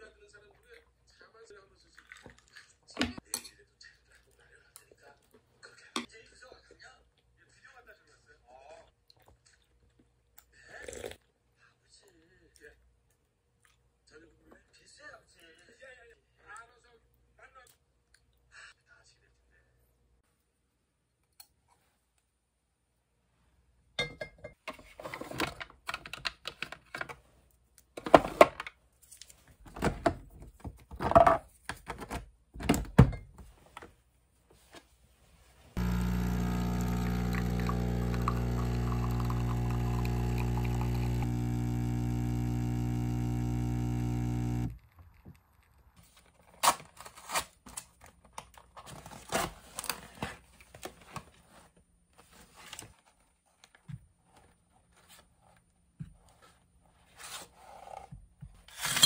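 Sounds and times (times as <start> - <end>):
espresso machine pump humming: 35.8 - 44.9.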